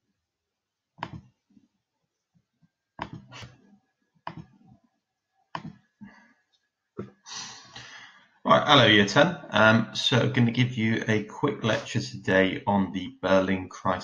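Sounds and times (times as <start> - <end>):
computer mouse clicking: 1.0 - 1.3, 3.0 - 3.5, 4.3 - 4.5, 5.6 - 5.8.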